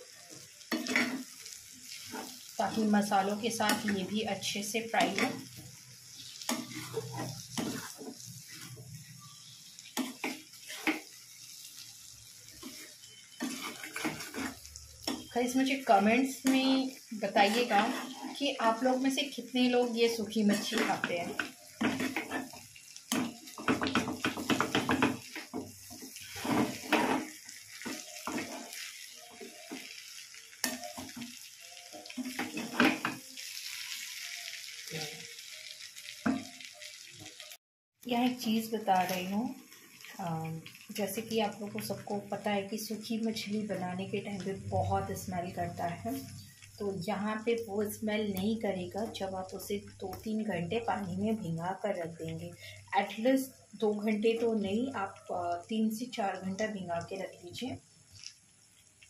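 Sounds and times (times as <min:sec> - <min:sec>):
faint frying sizzle: 0:00.0 - 0:59.0
spatula scraping and knocking pan: 0:00.7 - 0:01.3, 0:05.0 - 0:05.5, 0:06.4 - 0:08.8, 0:10.0 - 0:11.2, 0:12.6 - 0:15.3, 0:17.4 - 0:18.4, 0:20.4 - 0:29.9, 0:32.0 - 0:33.2.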